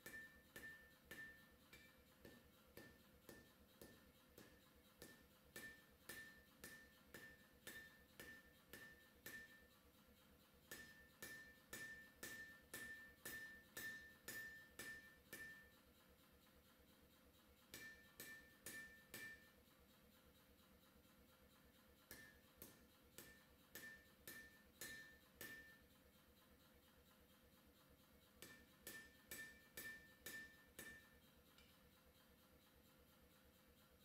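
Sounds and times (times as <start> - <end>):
hammer blows on hot steel: 10.7 - 15.7, 28.4 - 31.2.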